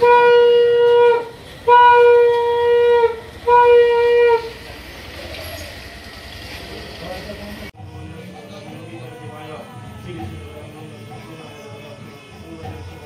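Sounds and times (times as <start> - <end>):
conch shell blasts: 0.0 - 4.6.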